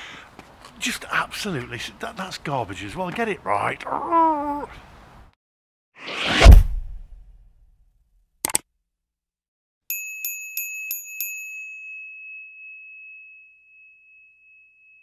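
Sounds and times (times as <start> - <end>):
bright bell ringing: 9.9 - 15.0.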